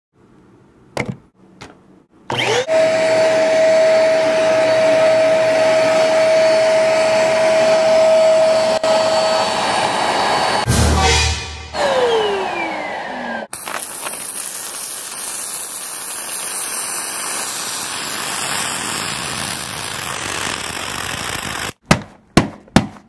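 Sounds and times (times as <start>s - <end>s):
vacuum cleaner running: 2.3s - 10.7s, 11.7s - 13.8s.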